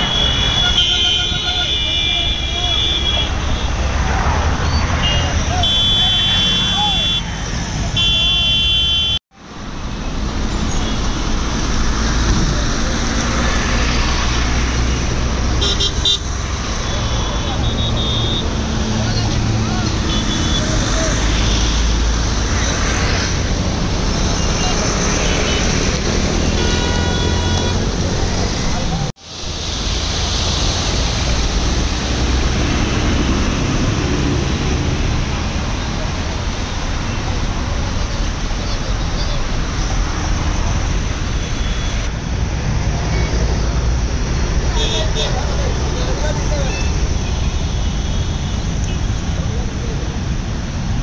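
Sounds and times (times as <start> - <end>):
floodwater rushing: 9.4 - 41.8
car ploughing through floodwater: 28.0 - 38.6.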